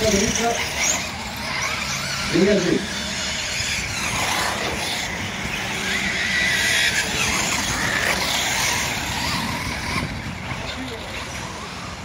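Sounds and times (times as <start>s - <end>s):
rc truck motors whining: 0.0s - 12.0s.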